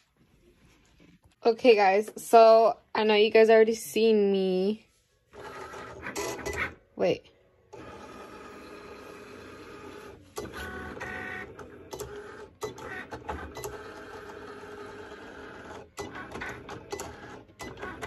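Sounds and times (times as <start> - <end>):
cutting machine motors whirring: 7.7 - 18.0.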